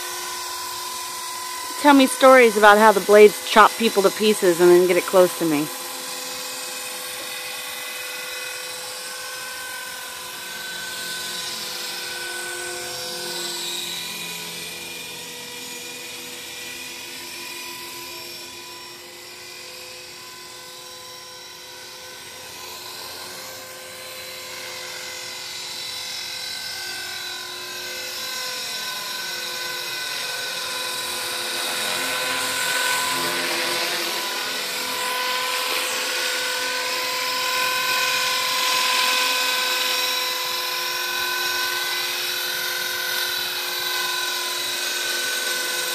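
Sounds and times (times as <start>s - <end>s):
rc helicopter motor whine: 0.0s - 45.9s.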